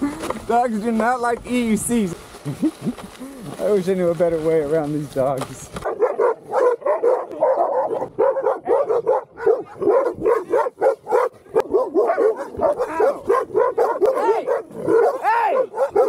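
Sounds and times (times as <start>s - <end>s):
dogs barking: 5.8s - 16.0s.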